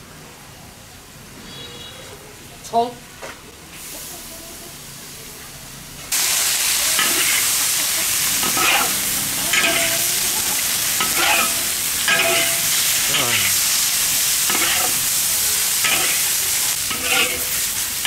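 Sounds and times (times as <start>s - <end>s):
food sizzling in a wok: 3.7s - 18.0s
metal spatula scraping wok: 6.9s - 17.8s.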